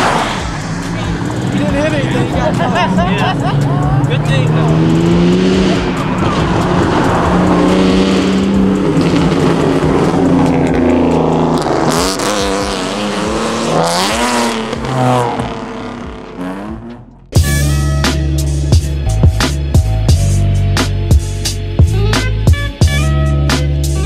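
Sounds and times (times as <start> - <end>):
sports car engines revving: 0.0 - 19.2.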